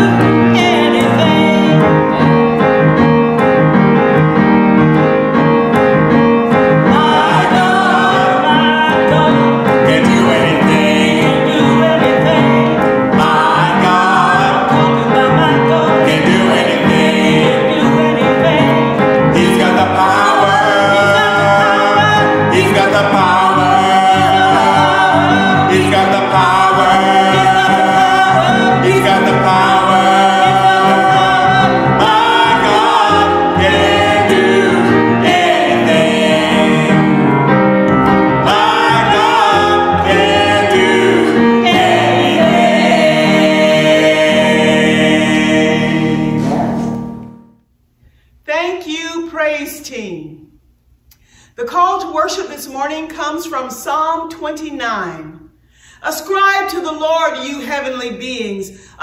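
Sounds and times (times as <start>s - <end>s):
voices singing: 0.0s - 3.2s, 6.3s - 47.3s
piano accompaniment: 0.0s - 47.6s.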